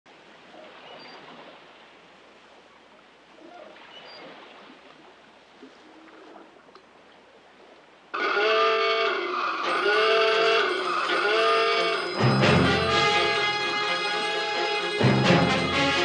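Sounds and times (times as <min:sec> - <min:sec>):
water lapping: 0:00.1 - 0:16.0.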